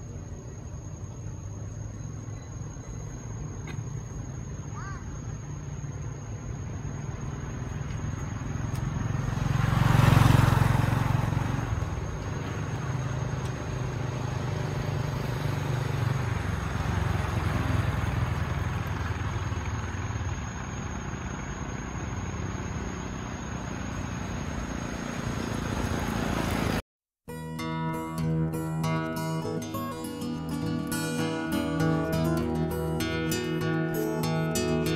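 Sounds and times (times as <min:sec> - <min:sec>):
low engine rumble: 0:00.0 - 0:26.8
vehicle passing close: 0:06.4 - 0:26.8.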